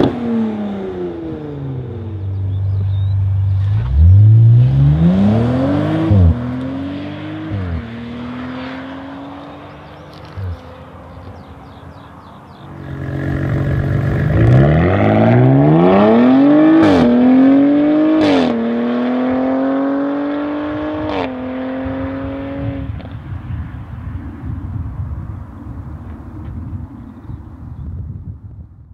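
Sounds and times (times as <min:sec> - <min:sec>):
car engine accelerating hard: 0:00.0 - 0:11.9, 0:12.5 - 0:23.1.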